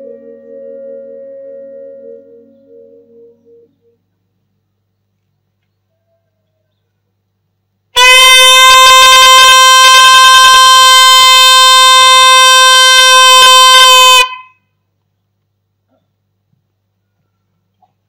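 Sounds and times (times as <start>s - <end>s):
trumpet long steady note: 8.0s - 14.6s.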